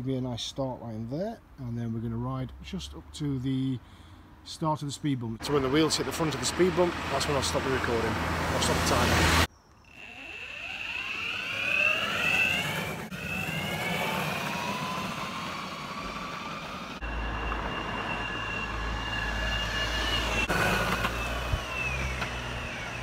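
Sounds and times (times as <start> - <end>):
electric skateboard motor whine: 9.1 - 23.0.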